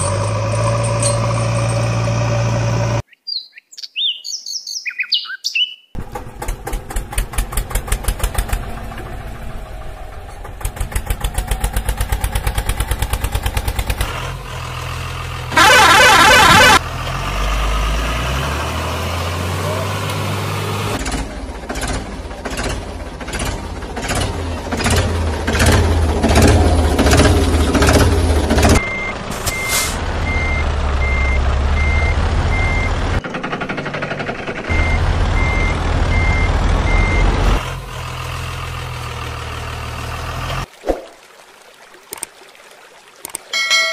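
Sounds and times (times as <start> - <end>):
heavy truck engine chugging: 6.0 - 16.8, 21.0 - 39.8
reversing alarm beeping: 28.8 - 33.0, 34.7 - 37.4.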